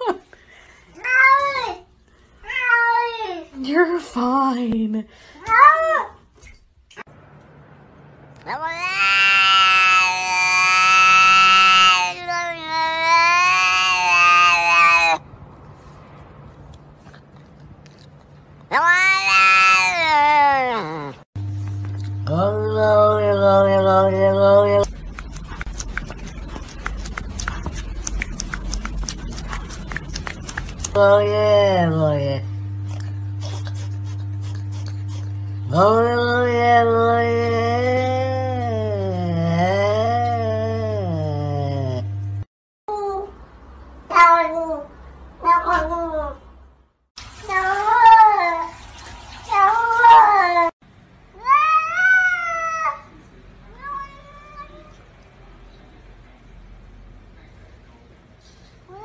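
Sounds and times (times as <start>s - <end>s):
cat meowing: 8.5s - 15.2s, 18.7s - 21.2s
close rustling and crackling: 24.9s - 31.0s.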